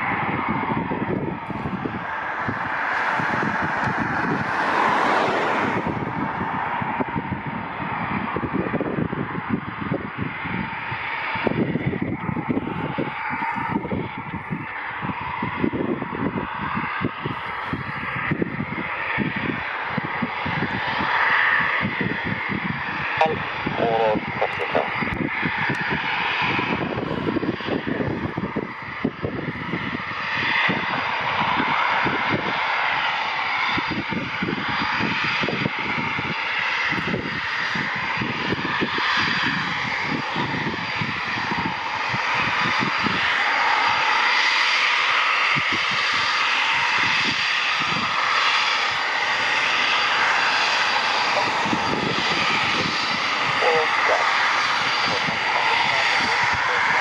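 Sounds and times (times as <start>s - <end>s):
low rumble: 0.0s - 32.5s, 48.9s - 57.0s
jet engine whine and roar: 0.0s - 57.0s.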